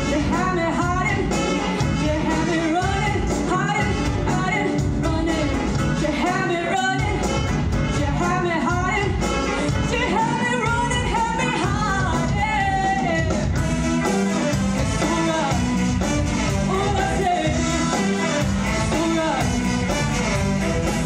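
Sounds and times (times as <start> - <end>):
woman singing: 0.0 - 13.6, 14.8 - 15.8, 16.5 - 19.6
jazz band playing: 0.0 - 21.0.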